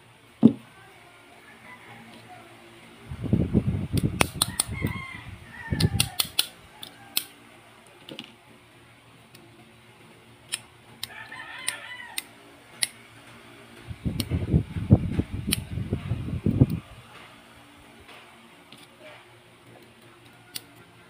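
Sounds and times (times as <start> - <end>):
heavy handling thumps: 0.4 - 0.7
rooster crowing: 1.4 - 2.6, 4.4 - 7.8, 11.0 - 12.4
metallic clicks of gun parts: 5.8 - 7.3.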